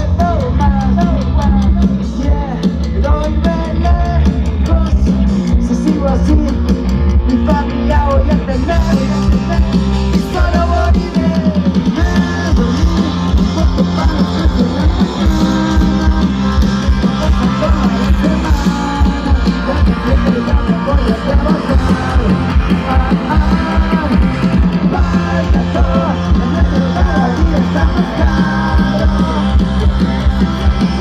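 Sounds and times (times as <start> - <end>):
rock band playing live: 0.0 - 31.0.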